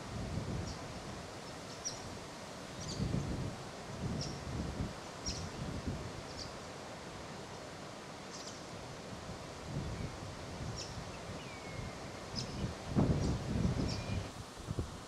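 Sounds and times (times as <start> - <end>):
wind rumble on microphone: 0.0 - 1.3, 1.9 - 6.5, 9.1 - 15.0.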